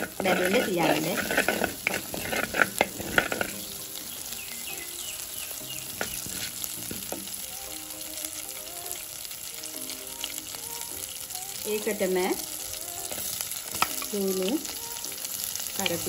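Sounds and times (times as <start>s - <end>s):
spoon scraping pot: 0.0s - 3.8s, 6.0s - 7.2s
sharp popping seeds: 0.0s - 7.3s
seeds sizzling in hot oil: 0.0s - 16.0s.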